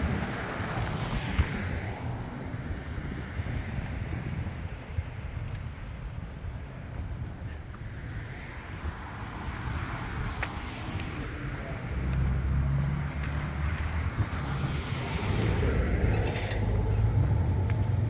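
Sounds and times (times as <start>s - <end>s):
traffic rumble: 0.0s - 18.0s
engine hum: 7.1s - 18.0s.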